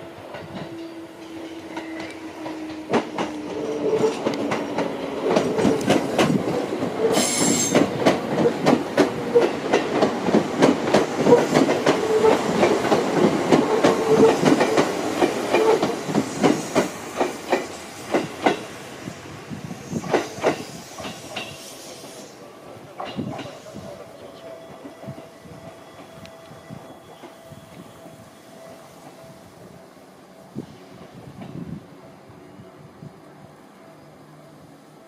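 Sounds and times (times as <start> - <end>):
train wheels clicking over rail joints: 0.2 - 18.8, 19.8 - 26.4.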